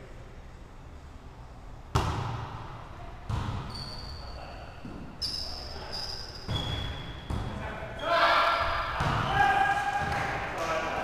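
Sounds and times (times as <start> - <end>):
volleyball being struck: 1.9 - 2.7
sneakers squeaking on gym floor: 3.3 - 10.2.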